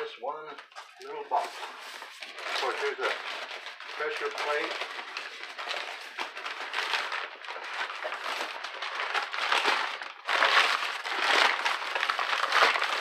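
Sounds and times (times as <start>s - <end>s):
packing paper crinkling: 0.0s - 13.0s.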